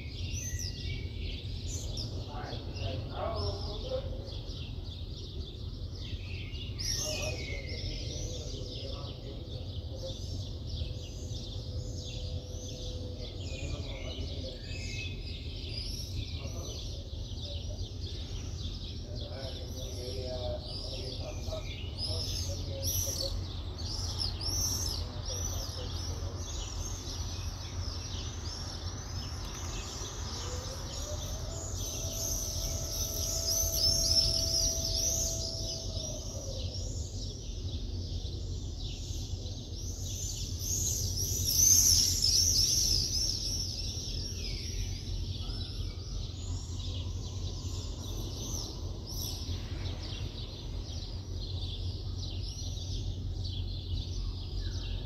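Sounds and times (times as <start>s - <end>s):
low city rumble: 0.0s - 55.0s
small birds chirping: 0.0s - 55.0s
faint rising tone: 31.4s - 36.8s.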